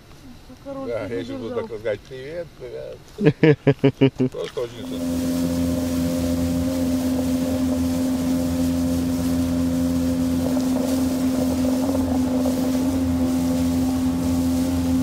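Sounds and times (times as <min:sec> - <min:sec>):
outboard motor running: 0:04.6 - 0:15.0.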